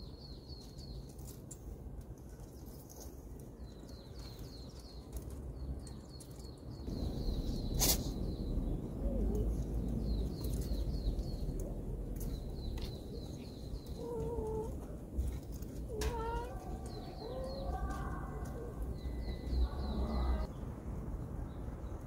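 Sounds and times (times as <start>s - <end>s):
small birds chirping: 0.0s - 1.8s, 2.4s - 20.7s
low outdoor rumble: 3.1s - 22.0s
cat meowing: 15.9s - 17.9s.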